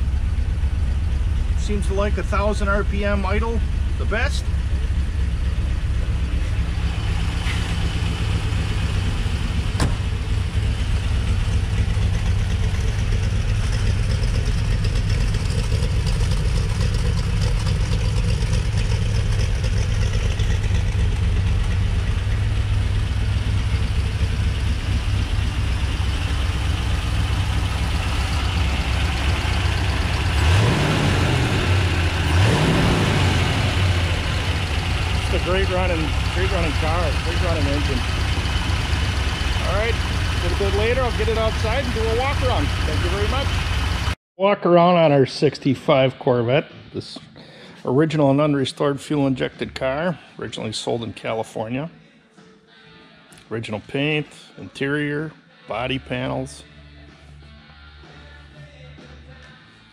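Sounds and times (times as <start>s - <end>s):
car engine idling: 0.0s - 44.2s
engine revving: 1.6s - 44.2s.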